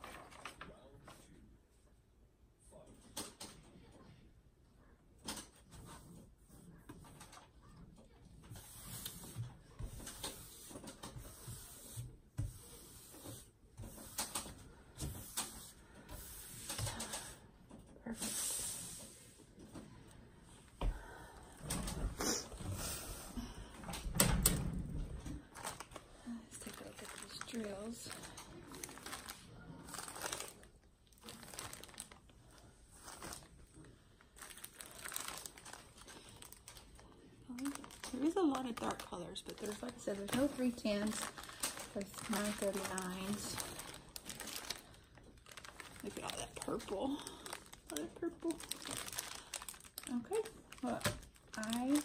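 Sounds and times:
plastic film rustling and crinkling: 0.0s - 1.4s, 5.2s - 17.4s, 24.4s - 52.0s.

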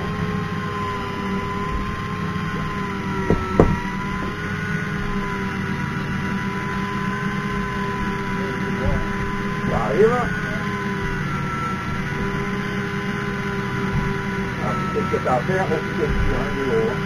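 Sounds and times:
fishing reel motor whining: 0.0s - 17.0s
knock: 3.3s - 3.8s.

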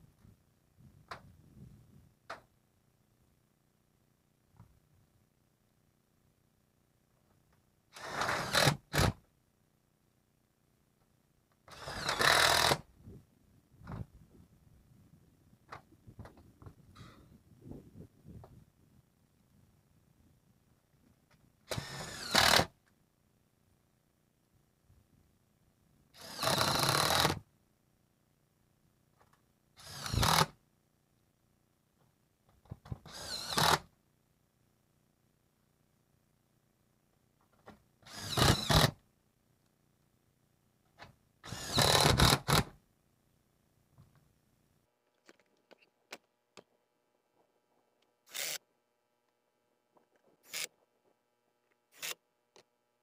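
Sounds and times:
power drill driving screws: 8.0s - 9.2s, 11.7s - 12.8s, 21.7s - 22.7s, 26.2s - 27.4s, 29.8s - 30.5s, 33.0s - 33.8s, 38.1s - 39.0s, 41.4s - 42.7s, 48.3s - 48.6s, 50.4s - 50.7s, 51.9s - 52.2s.

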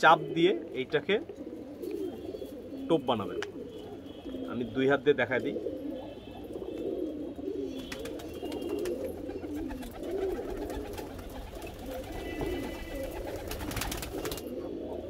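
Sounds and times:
pigeons cooing: 0.0s - 15.0s.

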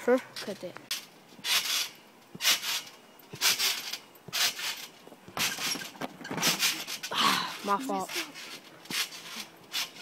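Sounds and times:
trampoline bounce rushing: 1.4s - 7.1s.

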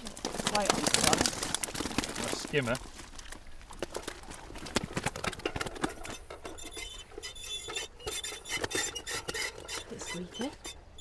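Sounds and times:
net and metal rattling: 0.0s - 11.0s
thin high squeaks: 5.9s - 11.0s.

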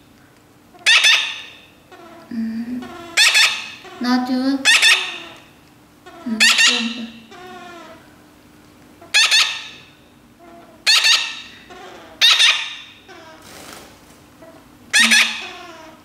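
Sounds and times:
parrot chick begging squawks: 0.8s - 8.0s, 9.0s - 9.8s, 10.4s - 13.4s, 14.5s - 16.0s.

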